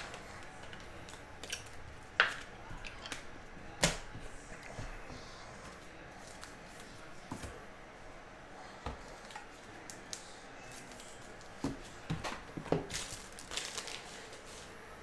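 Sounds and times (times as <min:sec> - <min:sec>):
cards and plastic sleeves rustling: 0:09.1 - 0:15.0.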